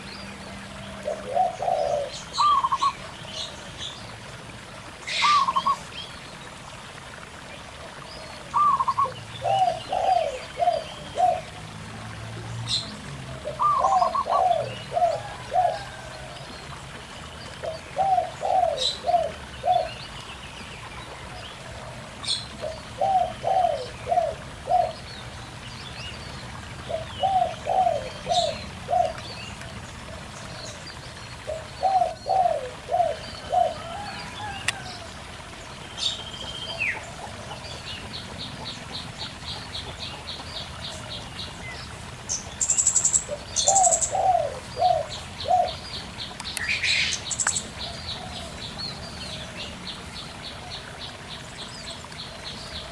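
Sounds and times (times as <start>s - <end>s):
stream babbling: 0.0s - 52.9s
dove cooing: 0.8s - 3.0s, 5.1s - 5.9s, 7.9s - 11.6s, 13.4s - 16.5s, 17.6s - 20.0s, 21.6s - 25.0s, 26.9s - 29.2s, 31.4s - 35.1s, 43.2s - 45.8s
small birds chirping: 35.7s - 52.9s.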